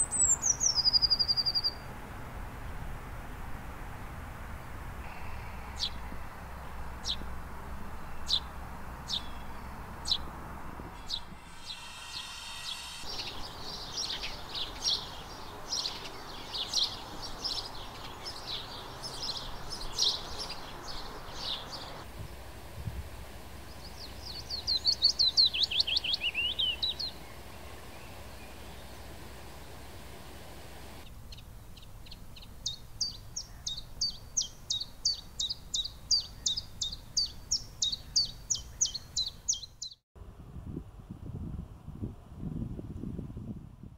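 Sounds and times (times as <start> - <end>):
sparrow sharp chirps: 0.0 - 1.8, 5.0 - 6.1, 7.0 - 7.3, 8.0 - 10.3, 11.0 - 22.1, 23.7 - 29.0, 31.3 - 40.0
sparrow chirping rapidly: 0.0 - 1.9, 5.1 - 10.3, 11.0 - 22.1, 23.6 - 29.1, 31.3 - 40.0
warbler song descending: 0.0 - 1.9, 5.1 - 40.0.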